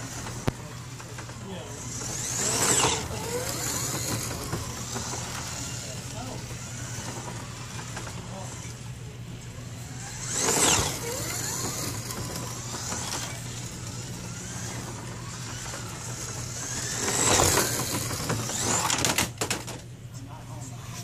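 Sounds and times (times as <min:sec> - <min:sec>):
steady low hum: 0:00.0 - 0:21.0
slot cars whizzing past: 0:09.9 - 0:19.2.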